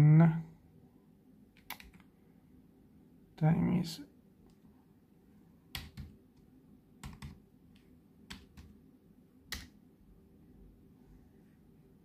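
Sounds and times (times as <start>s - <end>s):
keyboard keystrokes: 1.6s - 2.1s, 5.7s - 6.2s, 7.0s - 7.4s, 8.3s - 8.7s, 9.5s - 9.8s.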